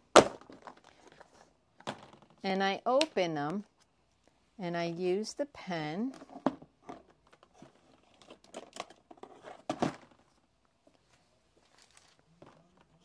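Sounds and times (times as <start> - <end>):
plastic containers clicking and rustling: 6.0 - 10.3.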